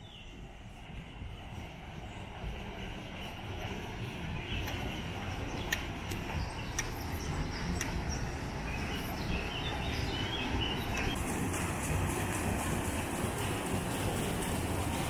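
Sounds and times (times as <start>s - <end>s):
birds chirping: 0.0s - 11.2s
steady low rumble: 0.0s - 15.0s
water pouring off water wheel: 11.0s - 15.0s.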